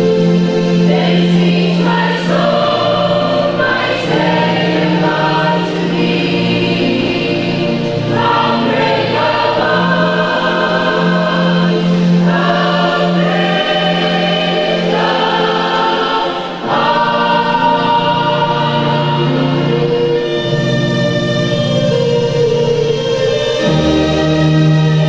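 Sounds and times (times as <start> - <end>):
choir singing: 0.0 - 25.0.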